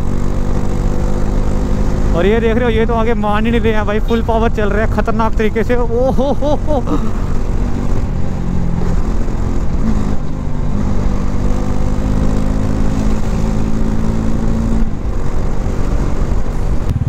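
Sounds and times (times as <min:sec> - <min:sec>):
motorcycle engine running: 0:00.0 - 0:17.0
wind and road noise: 0:00.0 - 0:17.0.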